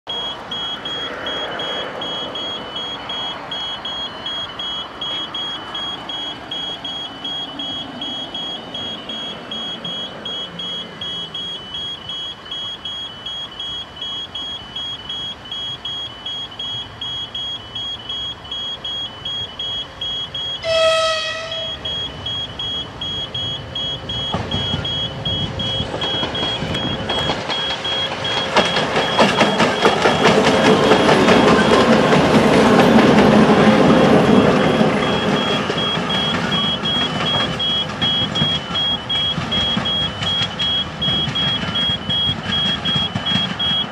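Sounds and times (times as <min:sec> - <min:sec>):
diesel locomotive engines: 0:00.1 - 0:43.9
train wheels on rails: 0:00.1 - 0:43.9
locomotive horn blast: 0:20.6 - 0:21.8.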